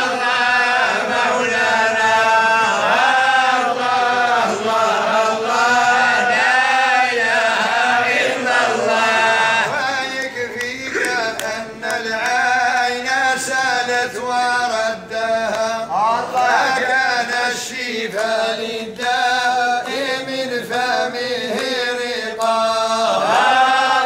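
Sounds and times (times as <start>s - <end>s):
men chanting together: 0.0s - 24.0s
hand claps: 9.5s - 14.3s, 15.4s - 16.9s, 18.1s - 23.7s.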